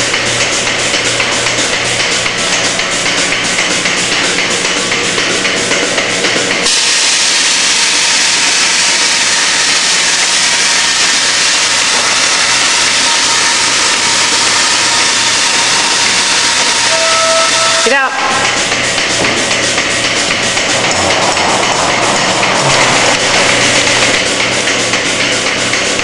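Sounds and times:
milking pulsator pulsing: 0.0 - 6.6, 18.2 - 26.0
air hissing: 6.6 - 17.6, 18.6 - 25.2.

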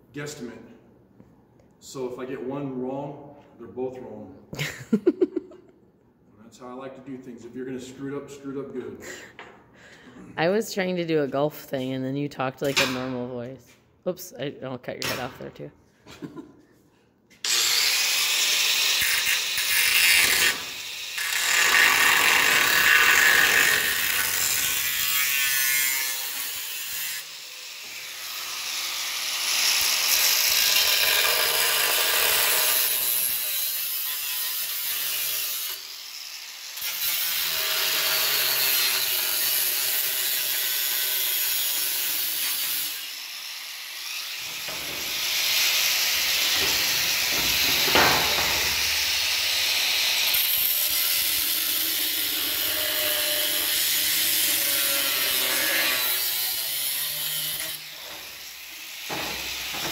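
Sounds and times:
power tool cutting steel: 17.4 - 59.9.

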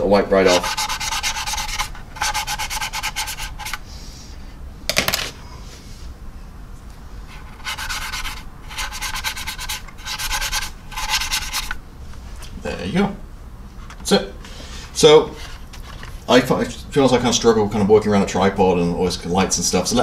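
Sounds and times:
brush scrubbing plastic: 0.3 - 3.8, 7.3 - 12.5.

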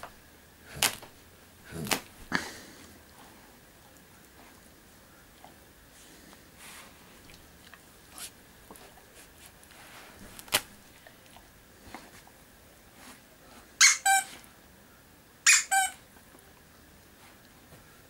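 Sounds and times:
dog toy squeaker squeaking: 13.8 - 14.3, 15.5 - 16.0.

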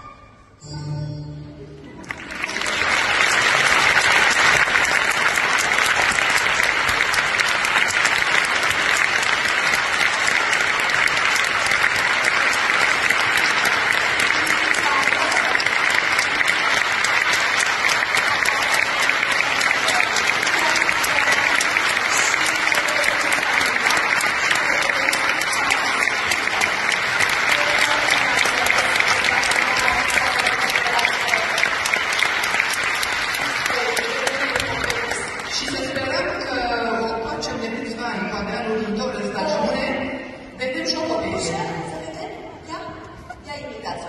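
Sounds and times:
ballet music: 0.0 - 3.1
audience applause: 1.8 - 36.6.

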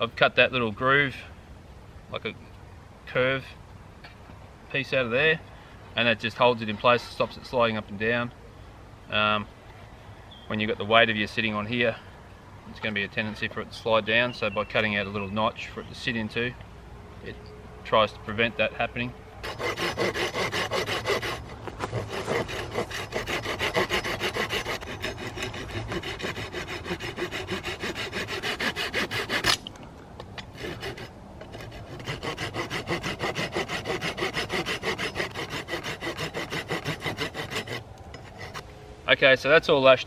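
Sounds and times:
saw cutting wood: 19.4 - 29.6, 30.4 - 38.7.

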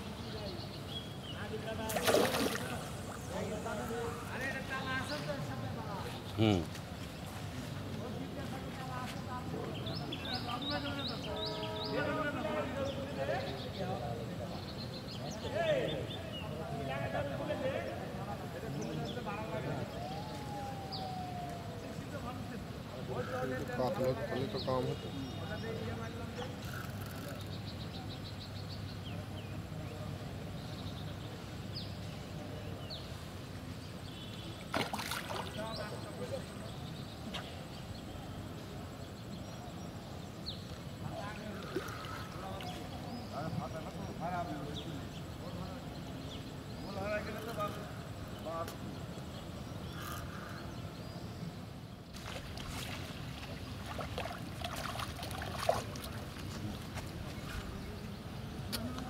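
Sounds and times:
fish splashing at water surface: 1.9 - 3.2, 34.7 - 35.7, 52.2 - 56.9.

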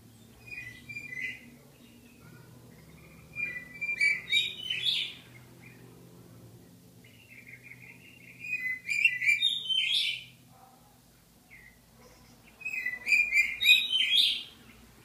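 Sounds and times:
budgerigar chirping: 3.2 - 5.2, 7.4 - 10.3, 12.6 - 14.5.

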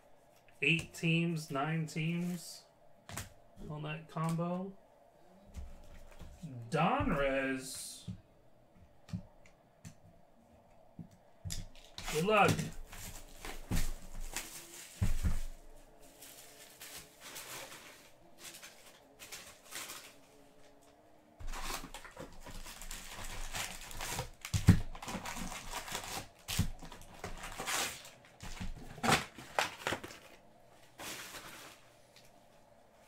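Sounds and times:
foil wrappers crinkling: 11.7 - 20.8, 21.4 - 32.3.

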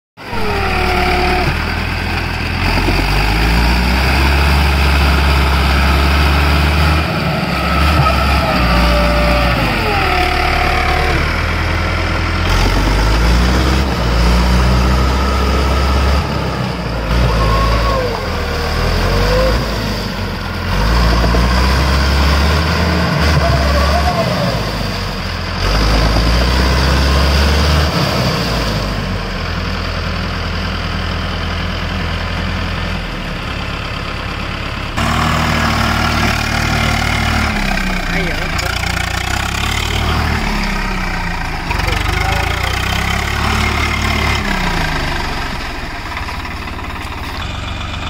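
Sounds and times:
sliding high tone: 0.2 - 20.0
tractor diesel engine labouring: 0.2 - 48.0.

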